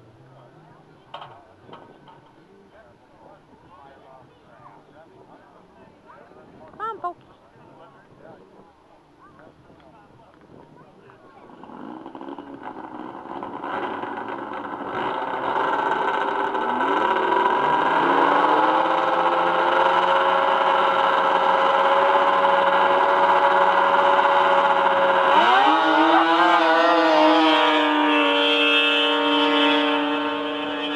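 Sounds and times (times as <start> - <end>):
snowmobile engine revving: 11.3 - 30.9.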